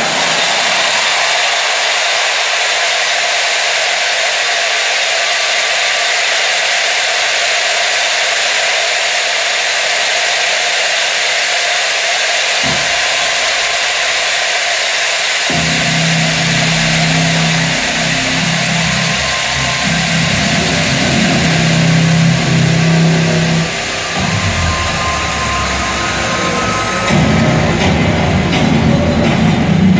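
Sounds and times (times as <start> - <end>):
crowd ringing cowbells: 12.6 - 29.9.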